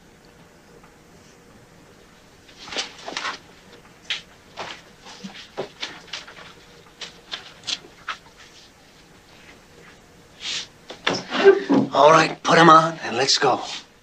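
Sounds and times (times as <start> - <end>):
footsteps on hard floor: 4.5 - 8.5.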